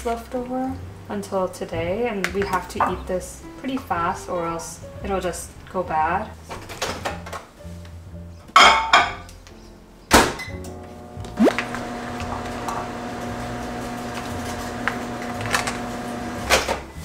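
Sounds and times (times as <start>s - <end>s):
microwave oven humming: 10.7s - 16.6s.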